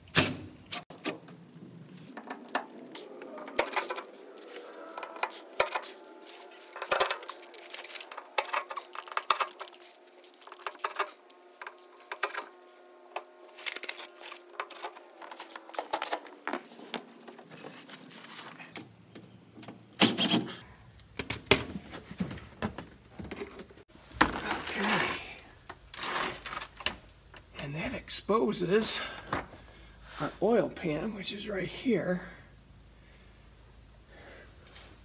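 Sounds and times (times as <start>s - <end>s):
metallic clicks and rattles: 2.0s - 4.2s, 6.8s - 9.8s.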